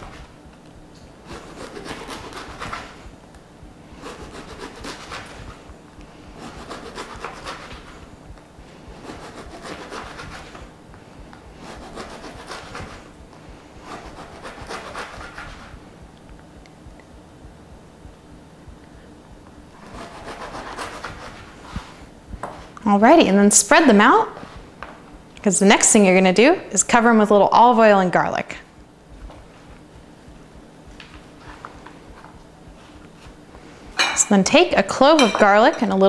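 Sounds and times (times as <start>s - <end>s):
knife sawing through bread: 1.2s - 3.1s, 4.0s - 5.6s, 6.3s - 8.1s, 8.9s - 10.7s, 11.5s - 13.1s, 13.8s - 15.8s, 19.8s - 22.0s.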